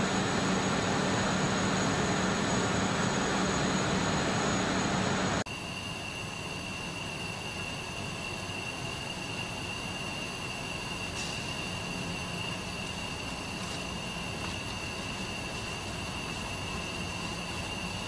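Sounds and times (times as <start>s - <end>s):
winding machinery running: 0.0s - 5.4s
high whine: 0.0s - 8.5s.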